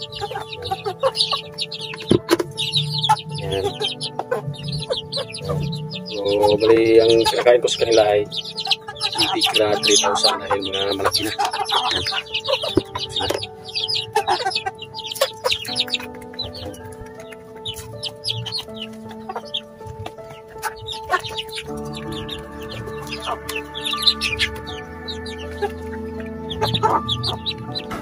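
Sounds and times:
beaks tapping on concrete: 0:00.0 - 0:28.0
chickens clucking: 0:00.0 - 0:28.0.

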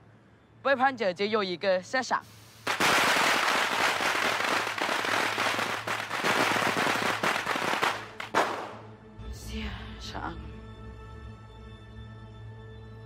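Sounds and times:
firecrackers crackling: 0:02.6 - 0:08.9.

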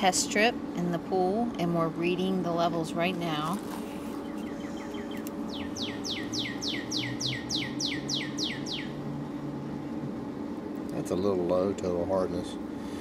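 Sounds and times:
steady low hum: 0:00.0 - 0:13.0
songbird singing: 0:03.8 - 0:09.9.

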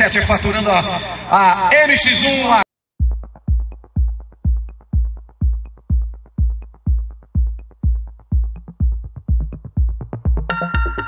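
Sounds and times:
deep kick drum: 0:03.0 - 0:11.0
electronic dance music: 0:03.0 - 0:11.0.

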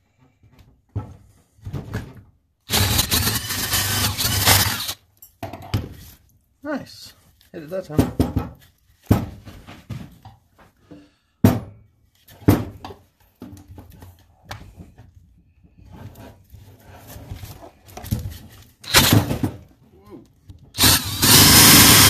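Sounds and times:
cordless drill boring into wood: 0:02.7 - 0:05.0, 0:18.8 - 0:19.3, 0:20.8 - 0:22.0.

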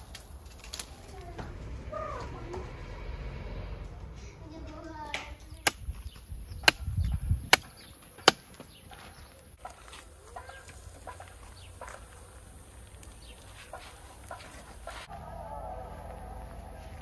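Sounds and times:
wooden stick snapping: 0:05.1 - 0:08.7.

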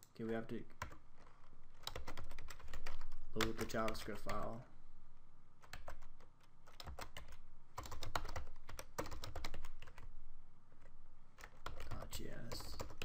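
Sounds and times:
typing on computer keyboard: 0:01.8 - 0:04.4, 0:05.6 - 0:10.1, 0:11.4 - 0:13.0.

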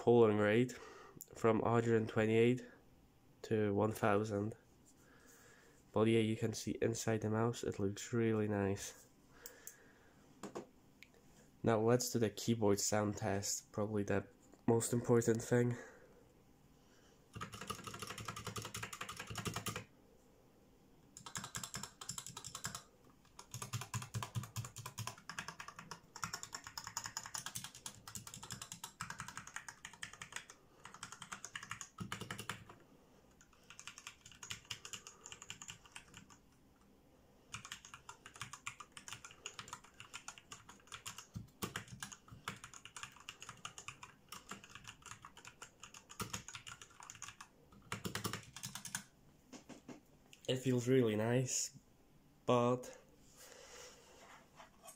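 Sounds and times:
fast typing on mechanical keyboard: 0:17.3 - 0:19.9, 0:21.2 - 0:32.8, 0:33.4 - 0:36.4, 0:37.5 - 0:49.1.

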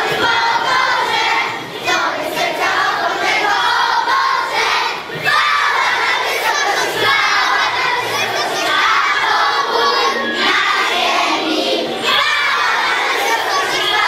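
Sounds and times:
children singing and shouting: 0:00.0 - 0:14.0.

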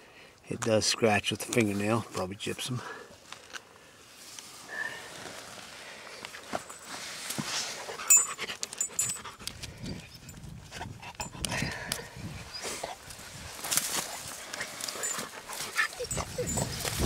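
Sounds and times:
dog panting: 0:14.2 - 0:17.0.

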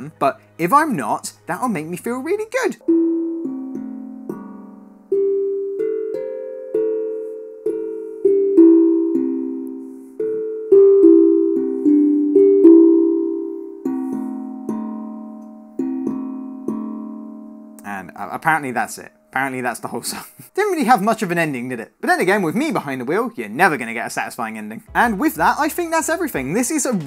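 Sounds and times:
steel tongue drum melody: 0:02.8 - 0:19.4, 0:24.8 - 0:27.0.

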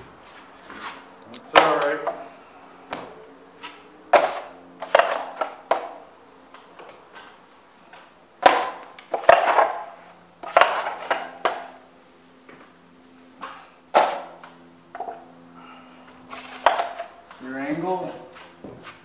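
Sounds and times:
drywall knife scraping and clacking: 0:03.6 - 0:05.6, 0:08.4 - 0:09.8, 0:10.4 - 0:11.6, 0:16.3 - 0:17.4.

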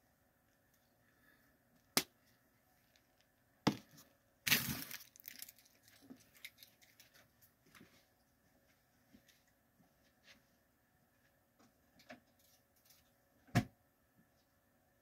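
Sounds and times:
candy rattling in plastic tube: 0:04.5 - 0:07.0.

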